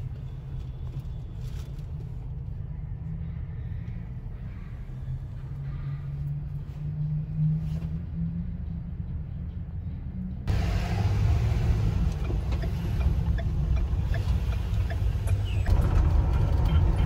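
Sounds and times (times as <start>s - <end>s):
bus engine humming: 4.1s - 17.0s.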